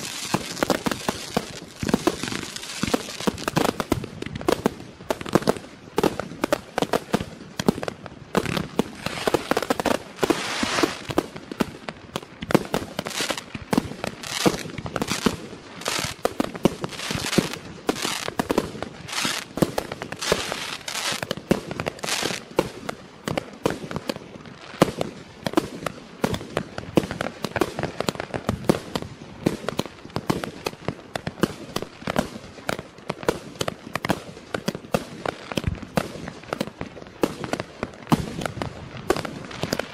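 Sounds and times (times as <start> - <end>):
fireworks hiss: 0.0 - 5.5, 8.4 - 22.6
fireworks shots and bursts: 0.0 - 39.9.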